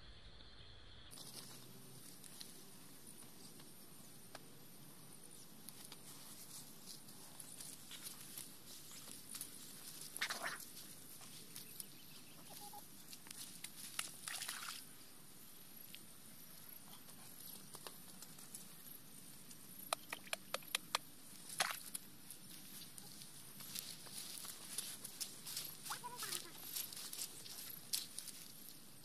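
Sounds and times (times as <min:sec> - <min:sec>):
bare feet rustling through dry grass: 0:05.7 - 0:14.7, 0:21.4 - 0:29.0
sharp snaps: 0:19.8 - 0:22.0.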